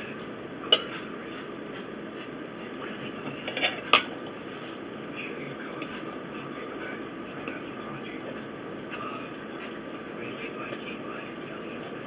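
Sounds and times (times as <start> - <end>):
metal fork clinking on plate: 0.6 - 1.0, 3.3 - 4.1.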